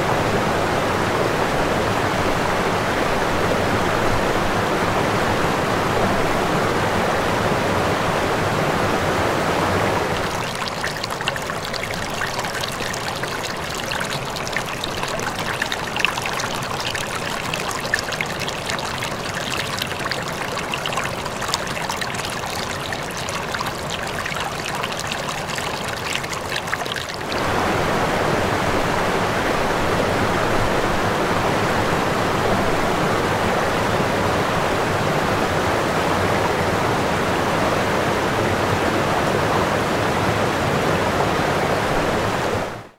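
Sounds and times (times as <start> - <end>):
stream running over stones: 8.4 - 28.1.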